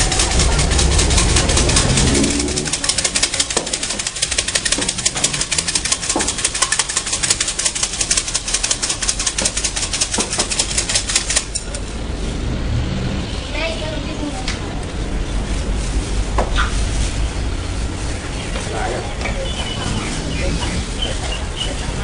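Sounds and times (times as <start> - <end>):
sticks rattling in shaken cup: 0.0 - 11.8.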